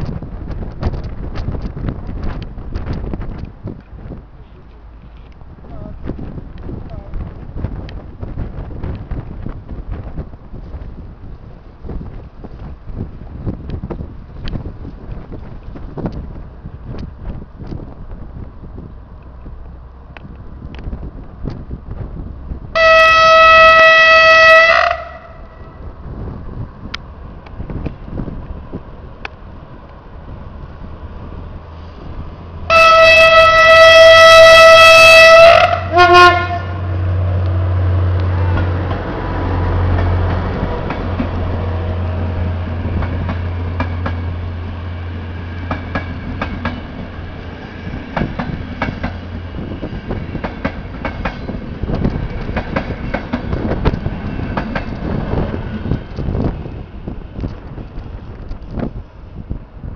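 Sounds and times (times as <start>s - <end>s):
locomotive low hum: 0.0s - 59.9s
locomotive horn blast: 22.7s - 25.9s, 32.7s - 37.2s
train wheels clattering over rails: 38.1s - 59.0s.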